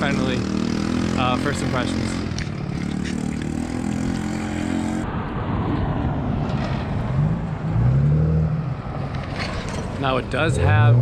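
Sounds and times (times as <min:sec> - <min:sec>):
car engine revving: 0:00.0 - 0:05.0
vehicle engine running: 0:00.0 - 0:05.0
road traffic rumble: 0:00.0 - 0:11.0.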